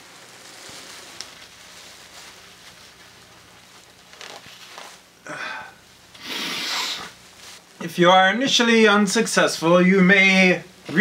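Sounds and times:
paper pad rustling and crinkling: 0.0s - 5.1s.

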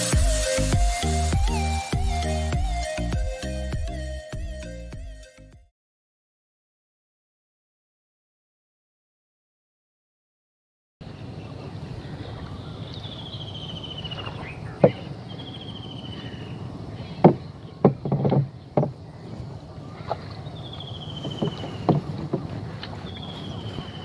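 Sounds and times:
pole knocking on boat hull: 17.2s - 19.0s, 21.2s - 22.6s.

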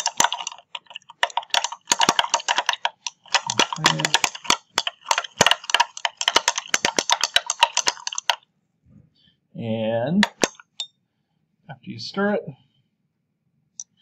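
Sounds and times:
glass rod clinking in beaker: 1.4s - 8.3s.

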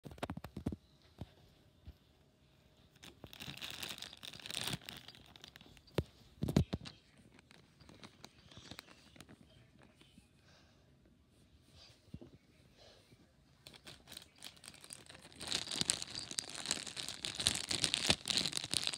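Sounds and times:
plastic bag crinkling: 3.0s - 9.3s, 13.6s - 18.9s.

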